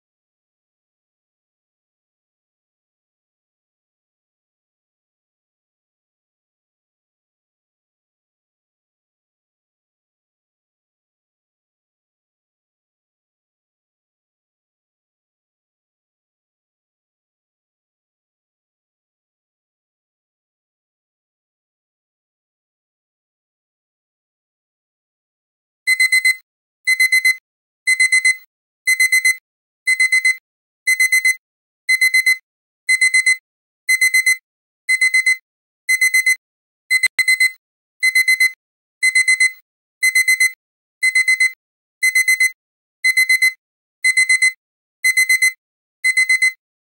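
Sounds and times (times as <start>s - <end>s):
timer alarm beeping: 25.9s - 46.6s.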